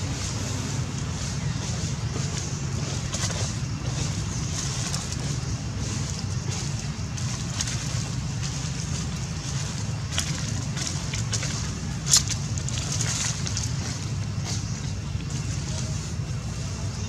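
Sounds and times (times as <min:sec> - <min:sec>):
dry leaves crackling and rustling: 0:00.0 - 0:17.0
low rumble: 0:00.0 - 0:17.0.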